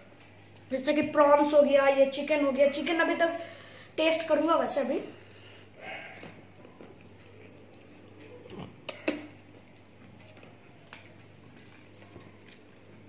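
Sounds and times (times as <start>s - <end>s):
steady low hum: 0.0s - 13.0s
people eating by hand: 5.1s - 13.0s.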